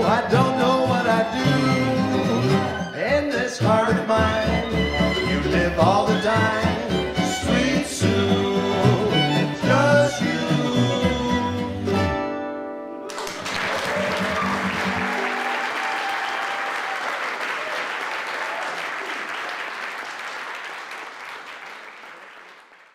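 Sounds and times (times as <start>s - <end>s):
people singing: 0.0s - 12.0s
jug band playing swing tune: 0.0s - 12.7s, 13.6s - 15.7s
audience applause: 13.1s - 22.9s.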